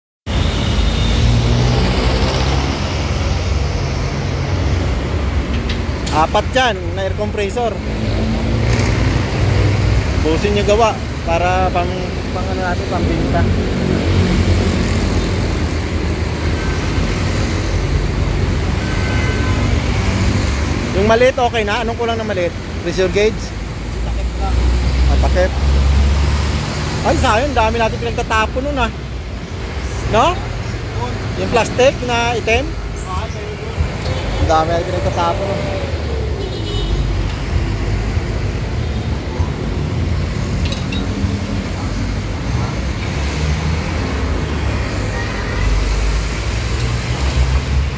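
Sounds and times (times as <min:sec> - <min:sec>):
low rumble of traffic: 0:00.3 - 0:47.9.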